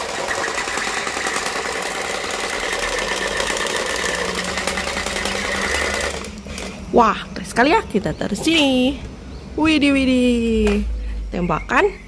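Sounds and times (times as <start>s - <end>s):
toy gun motor buzzing rattle: 0.0s - 6.8s.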